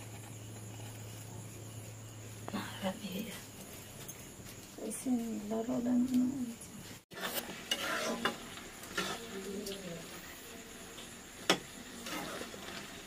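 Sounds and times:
food sizzling in frying pan: 7.0 - 13.0
utensil scraping pan: 7.1 - 10.1, 11.4 - 13.0.

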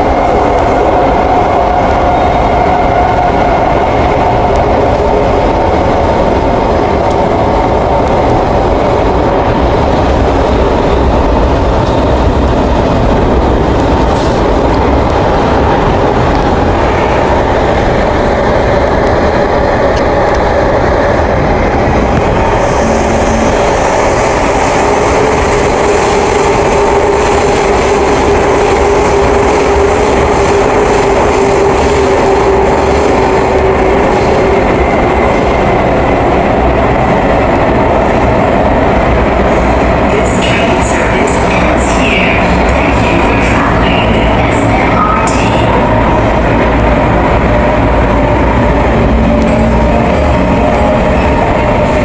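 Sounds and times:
train wheels and motors rumbling: 0.0 - 52.0
steady tone: 21.6 - 26.0, 43.8 - 52.0.

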